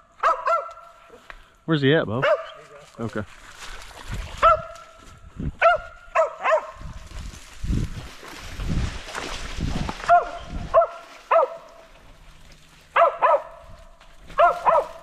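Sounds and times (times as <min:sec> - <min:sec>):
dog barking: 0:00.2 - 0:01.2, 0:02.2 - 0:02.7, 0:04.4 - 0:05.0, 0:05.6 - 0:06.8, 0:10.0 - 0:11.8, 0:12.9 - 0:15.0.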